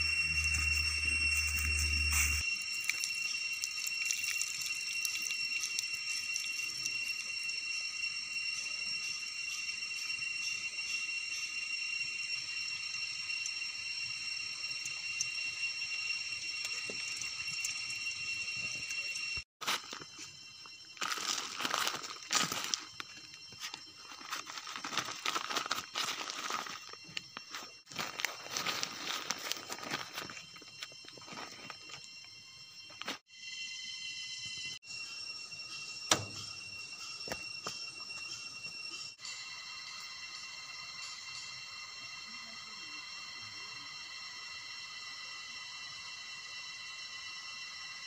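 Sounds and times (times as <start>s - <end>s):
steady high-pitched whine: 0.0s - 48.0s
water trickling onto wet dirt: 2.4s - 7.4s
plastic sheeting crinkling: 21.0s - 22.9s, 23.6s - 27.0s, 27.9s - 31.8s.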